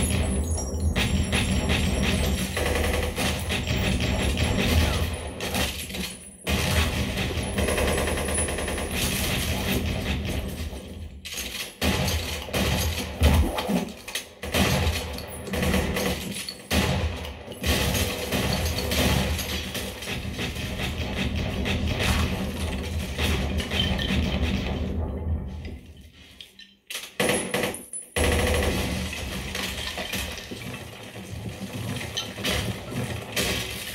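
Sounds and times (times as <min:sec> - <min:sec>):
shattering debris: 0:28.8 - 0:33.9.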